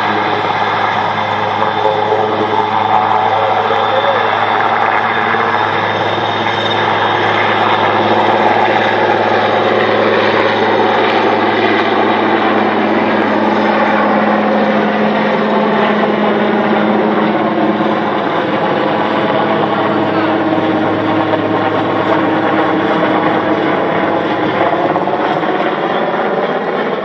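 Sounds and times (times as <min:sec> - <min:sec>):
low hum: 0:00.0 - 0:13.6
helicopter rotor and turbine noise: 0:00.0 - 0:27.0.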